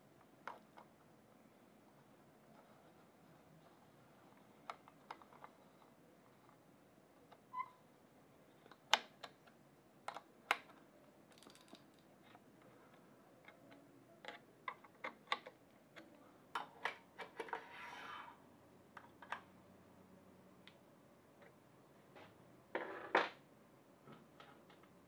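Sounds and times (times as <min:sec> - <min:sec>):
brief scrape: 0:17.6 - 0:18.4.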